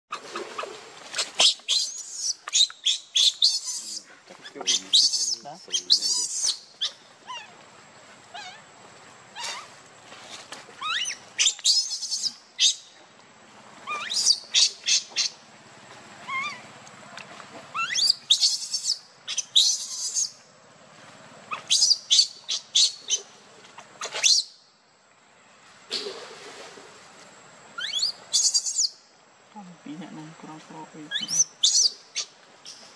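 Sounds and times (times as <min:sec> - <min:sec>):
baby monkey screaming: 0:01.2 - 0:07.5, 0:08.3 - 0:08.6, 0:09.4 - 0:09.7, 0:10.8 - 0:12.8, 0:13.8 - 0:15.3, 0:16.2 - 0:16.7, 0:17.7 - 0:20.3, 0:21.5 - 0:23.2, 0:27.8 - 0:28.9, 0:31.1 - 0:32.3.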